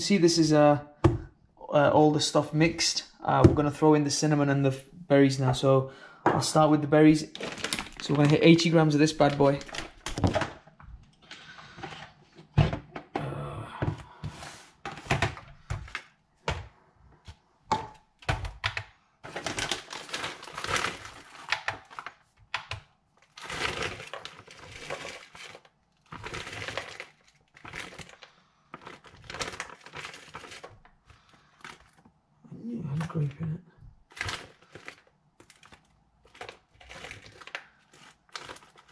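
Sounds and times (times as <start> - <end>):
plastic bag crinkling: 7.2 - 10.5, 19.3 - 22.2, 23.2 - 32.0, 34.1 - 38.9
frozen berries dropping into tub: 7.3 - 10.6.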